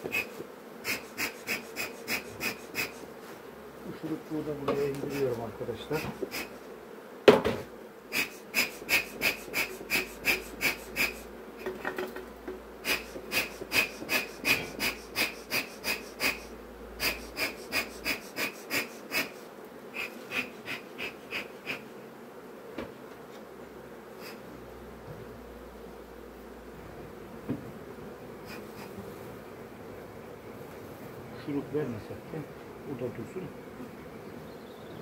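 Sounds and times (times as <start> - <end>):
bellows wheezing puffs: 0.1 - 3.2, 6.0 - 6.6, 8.1 - 11.3, 12.8 - 21.8, 28.4 - 29.0.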